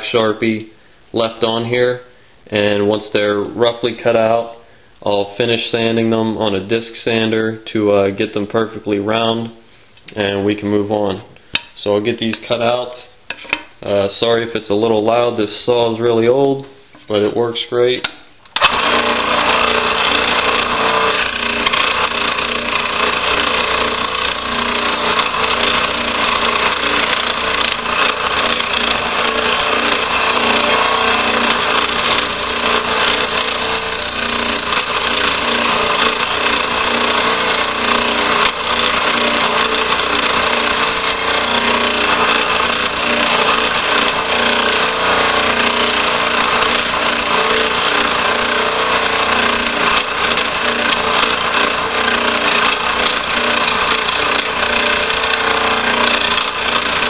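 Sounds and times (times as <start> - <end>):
scroll saw cutting hardboard: 18.6 - 57.0.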